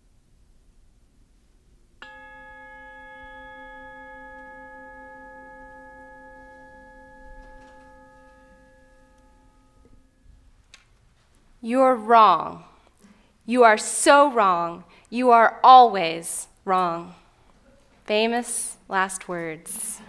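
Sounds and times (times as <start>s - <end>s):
bell-like chime ringing: 2.0s - 10.4s.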